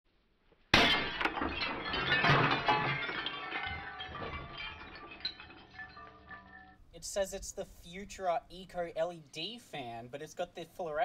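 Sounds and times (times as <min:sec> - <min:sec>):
glass smashing: 0:00.7 - 0:06.8
glass shards tinkling: 0:00.8 - 0:06.8.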